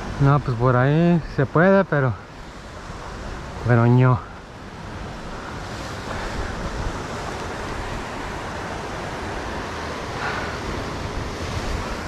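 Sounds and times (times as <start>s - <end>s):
surf washing against rocks: 0.0s - 12.0s
wind on microphone: 4.6s - 12.0s.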